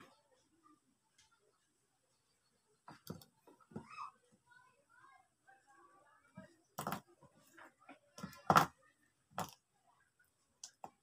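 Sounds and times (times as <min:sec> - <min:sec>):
objects knocking and clattering: 0:06.8 - 0:07.1, 0:08.2 - 0:09.6.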